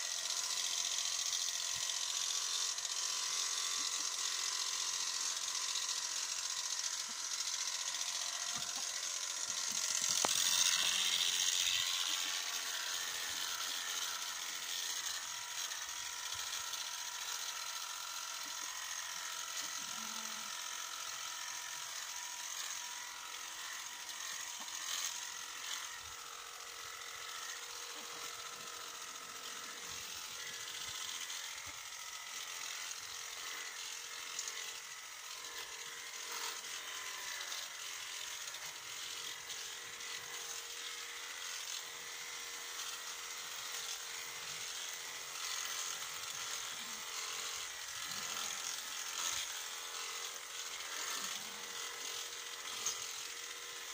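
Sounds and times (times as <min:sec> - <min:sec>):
electric sheep shears buzzing: 0:00.0 - 0:53.9
small clicks: 0:06.8 - 0:17.4.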